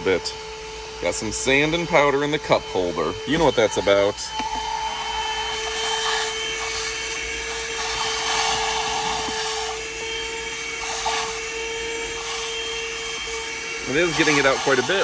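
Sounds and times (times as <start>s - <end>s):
handheld vacuum motor whine: 0.0s - 15.0s
rushing air hiss: 4.7s - 15.0s.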